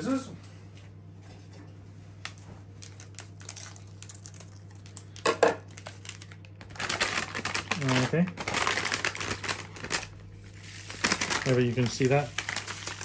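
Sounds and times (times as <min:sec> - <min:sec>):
steady low hum: 0:00.0 - 0:13.0
plastic sachet crinkling: 0:02.8 - 0:13.0.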